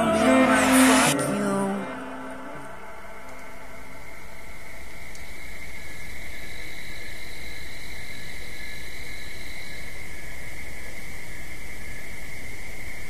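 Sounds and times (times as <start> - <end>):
faint higher tone: 0.0 - 4.3
steady high-pitched tone: 0.0 - 4.9.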